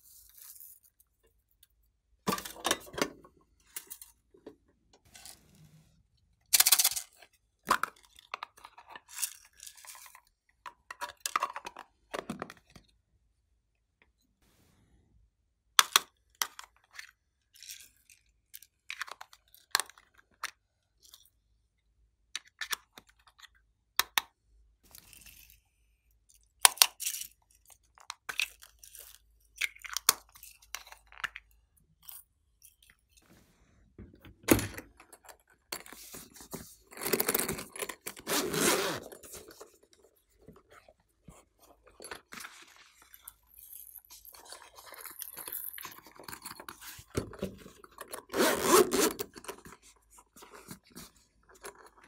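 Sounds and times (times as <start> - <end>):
zipper opening: 37.0 - 39.5, 48.2 - 49.4.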